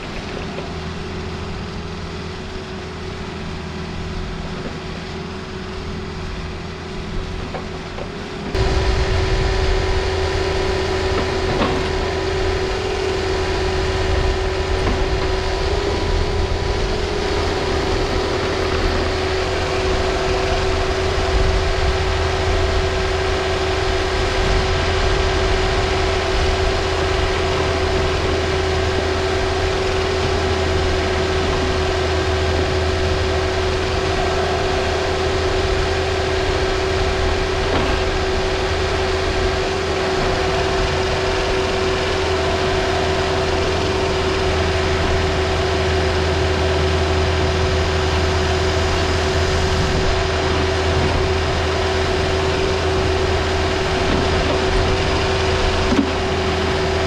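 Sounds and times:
excavator diesel engine running: 0.0 - 57.0
steady humming tone: 0.0 - 57.0.

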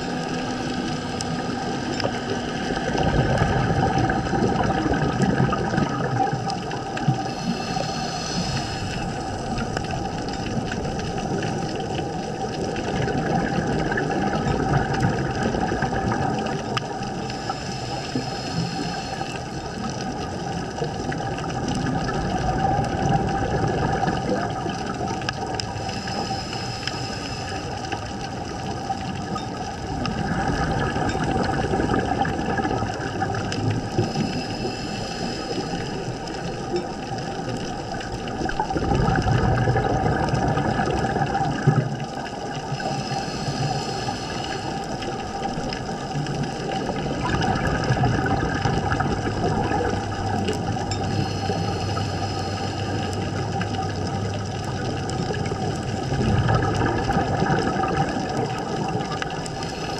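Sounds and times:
exhaled bubbles rushing: 0.0 - 26.2, 27.4 - 59.9
regulator hissing inhales: 7.3 - 9.5, 17.3 - 19.5, 25.8 - 27.9, 34.0 - 36.2, 42.7 - 45.0, 51.0 - 53.4.

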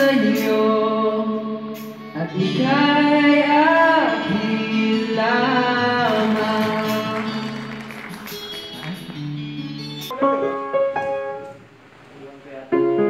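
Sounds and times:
guitar chords of sung ballad: 0.0 - 10.6
plucked guitar notes: 2.0 - 11.7
piano notes: 3.0 - 13.0.

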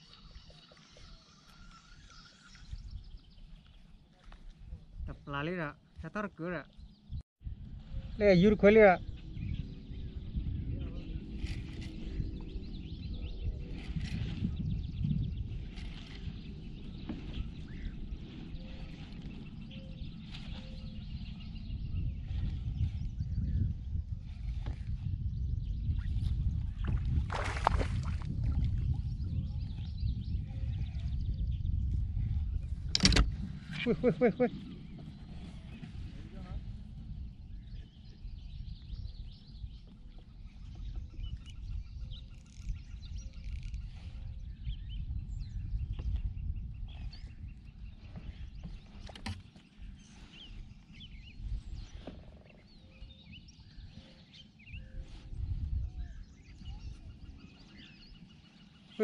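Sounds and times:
wind rumble on microphone: 0.0 - 6.2, 6.8 - 59.0
birds chirping: 0.0 - 7.2, 8.0 - 59.0
faint bird chirps: 37.5 - 59.0.

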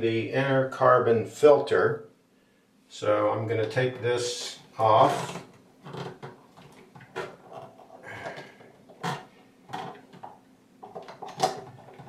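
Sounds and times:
plastic casing clicks and scrapes: 5.3 - 12.0.

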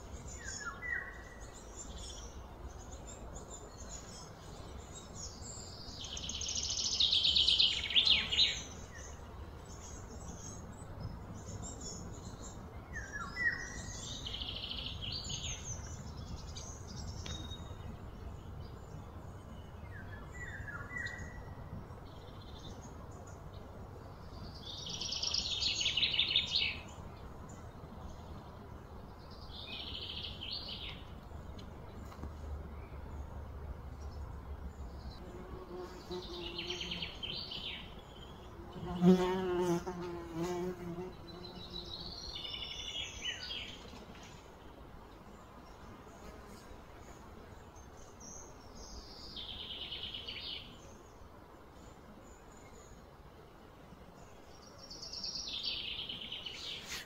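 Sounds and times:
bird buzzing trills: 35.2 - 42.6.

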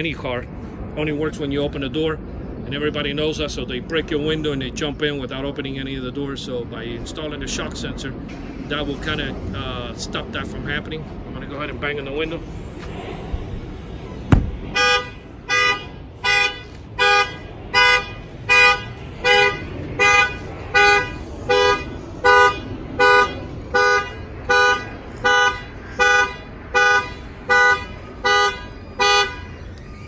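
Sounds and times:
car horn honking in pulses: 14.7 - 29.6.

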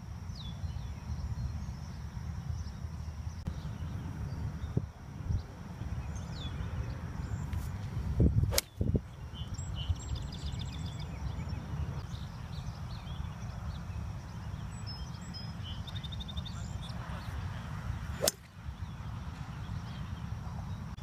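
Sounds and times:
wind rumble on microphone: 0.0 - 21.0
golf club striking ball: 18.2 - 18.5
swing whoosh: 18.2 - 18.5.

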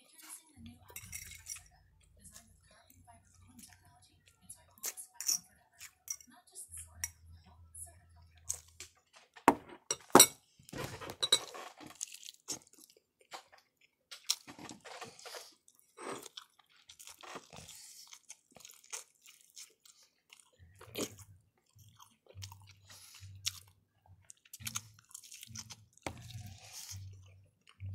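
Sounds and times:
person chewing crunchy food: 10.8 - 27.9.

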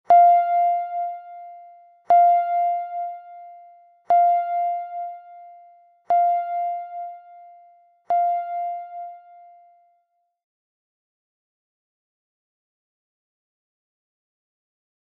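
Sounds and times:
timer bell chime: 0.1 - 10.0.

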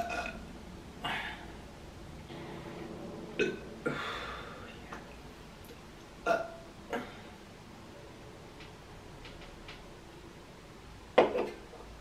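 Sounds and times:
woman burping: 0.0 - 0.4, 6.2 - 7.2.

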